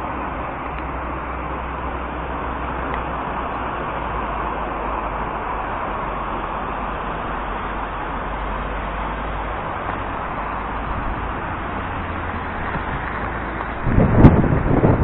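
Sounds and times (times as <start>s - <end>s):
low traffic rumble: 0.0s - 15.0s
passing cars hum: 0.0s - 15.0s.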